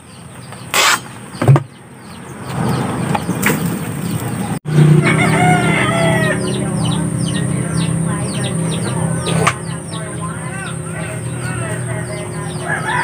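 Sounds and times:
rooster crowing: 0:04.8 - 0:06.7, 0:10.6 - 0:13.0.

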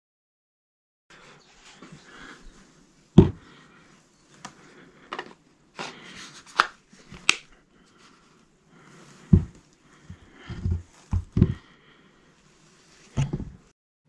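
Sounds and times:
heavy thump on wooden bench: 0:03.2 - 0:03.5, 0:09.3 - 0:09.6, 0:10.5 - 0:11.6, 0:13.2 - 0:13.6.

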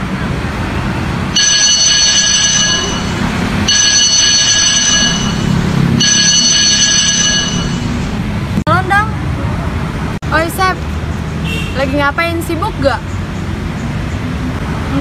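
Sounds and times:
low traffic rumble: 0:00.0 - 0:15.0
phone ringtone: 0:01.4 - 0:08.2.

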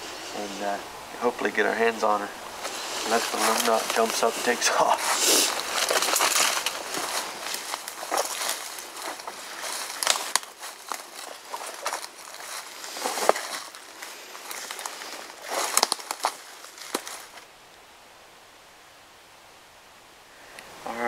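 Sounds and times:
brushing through undergrowth: 0:02.4 - 0:17.5
footsteps crunching dry leaves: 0:02.4 - 0:17.5.

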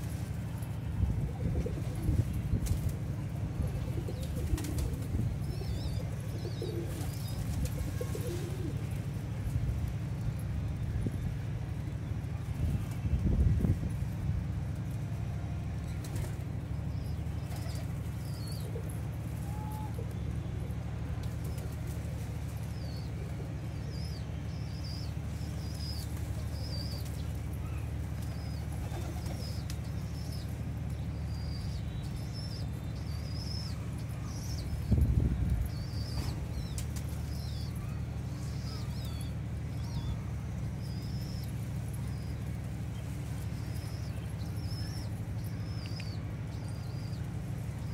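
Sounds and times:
steady low hum: 0:00.0 - 0:47.9
pigeon wing flaps: 0:04.1 - 0:05.2.

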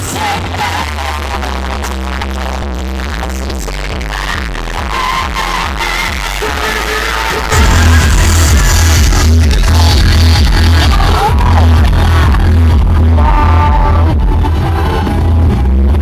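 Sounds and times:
heavy bass line: 0:00.0 - 0:16.0
background music: 0:05.0 - 0:16.0.

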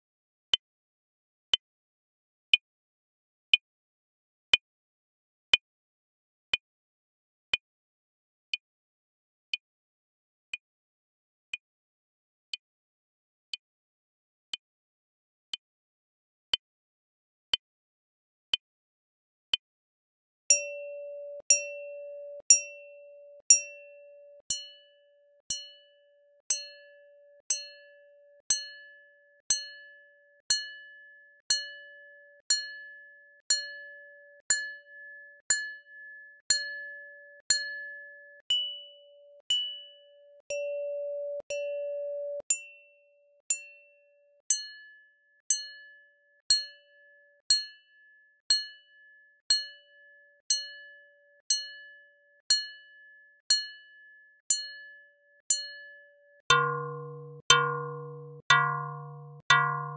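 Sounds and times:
metal hand bell strikes: 0:20.5 - 0:24.8, 0:56.5 - 0:59.9.

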